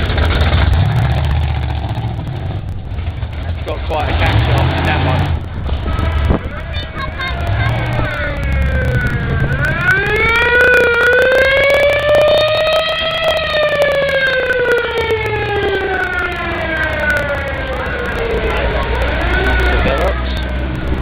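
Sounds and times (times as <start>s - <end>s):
car engines rumbling past slowly: 0.0s - 21.0s
siren wailing: 6.0s - 21.0s.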